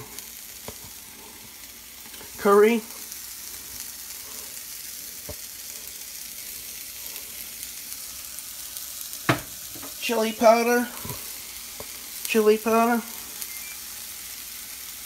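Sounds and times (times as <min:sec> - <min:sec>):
food sizzling in frying pan: 0:00.0 - 0:15.0
person speaking: 0:02.4 - 0:03.0, 0:10.0 - 0:11.0, 0:12.3 - 0:13.2.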